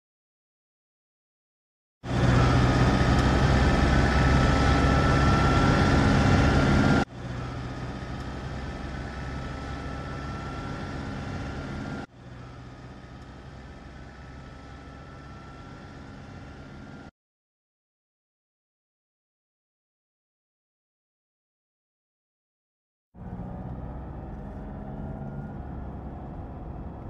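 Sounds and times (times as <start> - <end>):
faint rising whine: 2.1 - 17.1
vehicle engine humming: 2.1 - 17.1, 23.2 - 27.0.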